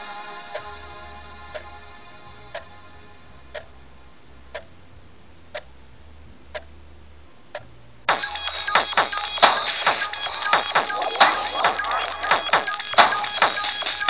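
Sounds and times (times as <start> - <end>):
faint low hum: 0.0 - 13.6
clock ticking: 0.5 - 0.7, 3.5 - 3.8, 4.5 - 4.8, 5.5 - 5.8, 6.4 - 6.8, 7.4 - 14.0.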